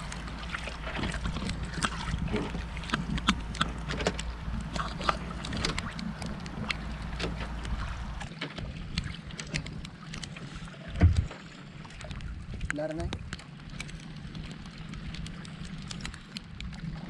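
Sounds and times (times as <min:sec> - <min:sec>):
low steady rumble: 0:00.0 - 0:17.0
rain on a wooden boat: 0:00.0 - 0:17.0.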